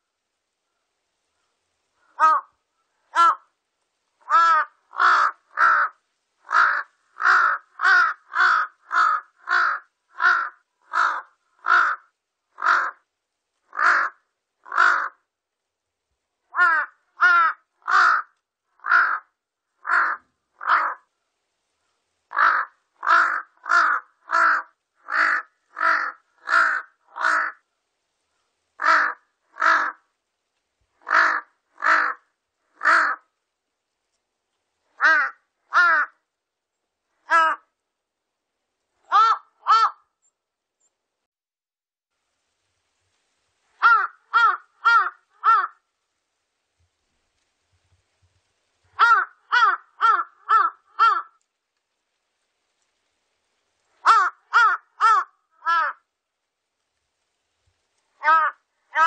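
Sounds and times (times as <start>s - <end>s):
crow cawing: 2.0s - 3.5s, 4.2s - 13.0s, 13.7s - 15.3s, 16.5s - 21.1s, 22.3s - 27.7s, 28.8s - 30.1s, 31.0s - 33.4s, 35.0s - 36.2s, 37.2s - 37.7s, 39.1s - 40.1s, 43.8s - 45.8s, 49.0s - 51.4s, 54.0s - 56.1s, 58.2s - 59.0s.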